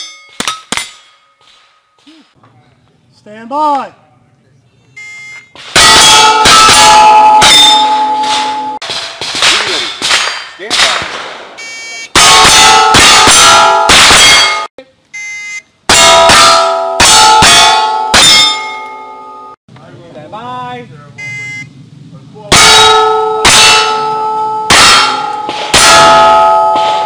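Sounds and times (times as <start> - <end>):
gunshots: 5.6 - 11.6, 12.2 - 14.7, 22.5 - 27.0
steel targets ringing: 5.8 - 9.2, 12.2 - 14.7, 15.9 - 19.6, 22.5 - 27.0
shot timer beeps: 21.2 - 21.7.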